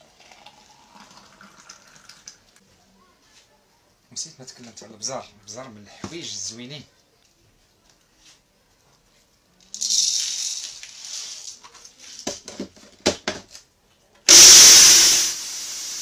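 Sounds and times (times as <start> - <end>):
peppercorns rattling into cup: 9.6 - 12.2
spice grinder motor grinding: 14.3 - 16.0.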